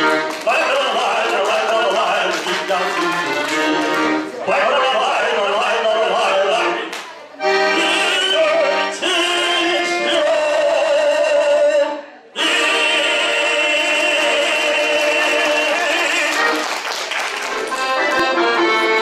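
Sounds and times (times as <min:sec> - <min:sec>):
piano accordion melody: 0:00.0 - 0:19.0.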